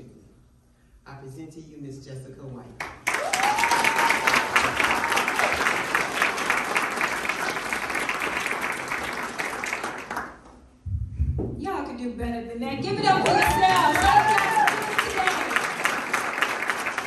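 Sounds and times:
audience applauding: 3.0s - 10.6s, 12.9s - 17.0s.

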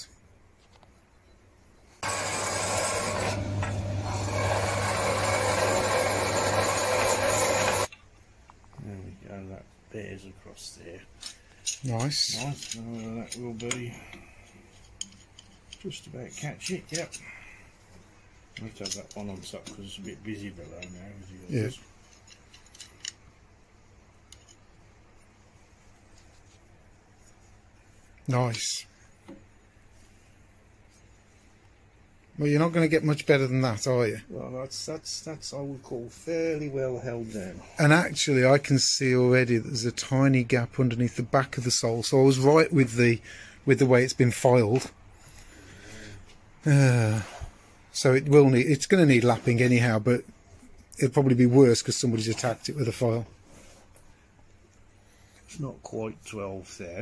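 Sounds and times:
bandsaw cutting metal: 2.0s - 7.9s.

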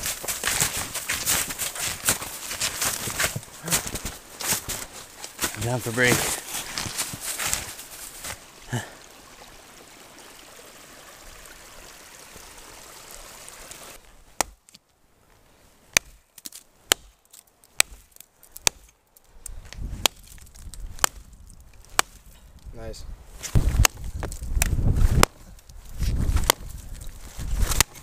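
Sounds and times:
creek water trickling: 0.0s - 14.6s
axe chopping a branch: 14.4s - 14.8s, 15.9s - 18.9s, 19.8s - 21.3s, 21.9s - 22.3s, 23.4s - 25.4s, 26.1s - 26.7s, 27.6s - 28.0s.

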